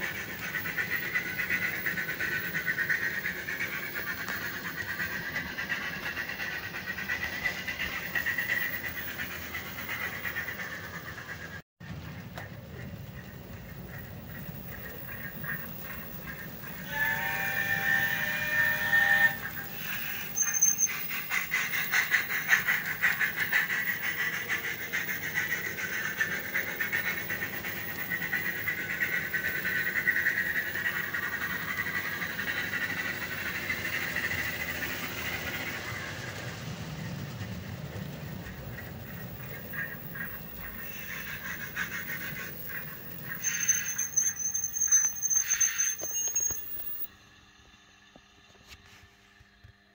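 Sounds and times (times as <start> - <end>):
steam exhaust chuffs: 0.0 - 49.9
chime whistle: 20.2 - 20.9, 43.4 - 47.1.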